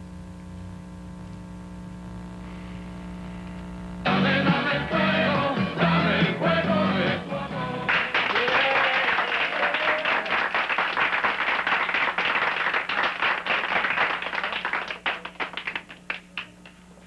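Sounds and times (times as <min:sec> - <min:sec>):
children applauding: 0:07.9 - 0:16.7.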